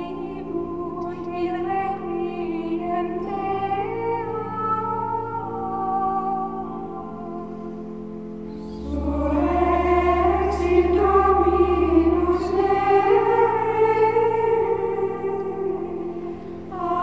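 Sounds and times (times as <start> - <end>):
low drone: 7.2 - 17.0
choir-like singing: 8.6 - 17.0.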